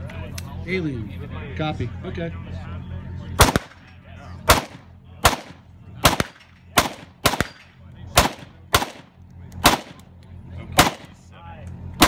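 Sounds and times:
rifle shots: 3.4 - 3.9, 4.5 - 10.0, 10.8 - 11.2.

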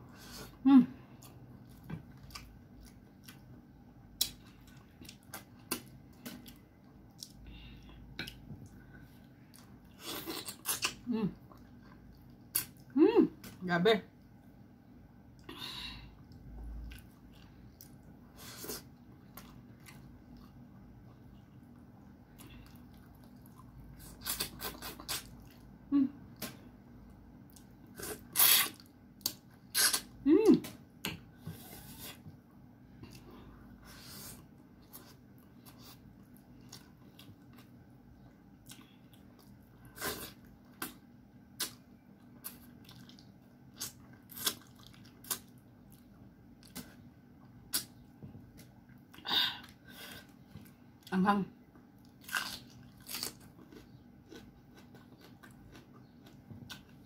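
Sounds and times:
person chewing with lip smacks: 22.3 - 25.7, 34.8 - 51.1, 52.0 - 57.0.

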